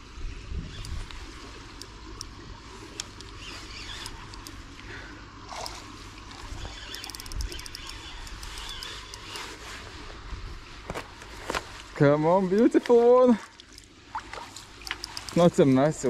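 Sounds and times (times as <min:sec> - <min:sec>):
sharp clicks: 0:02.9 - 0:04.6, 0:06.9 - 0:09.5, 0:14.8 - 0:15.4.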